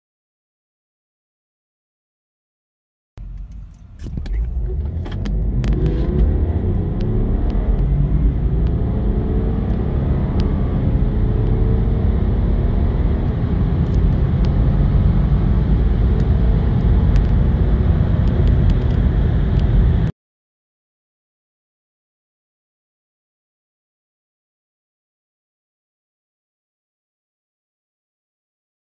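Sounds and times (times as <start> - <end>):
clicks: 3.2 - 6.3
car engine accelerating hard: 3.2 - 20.1.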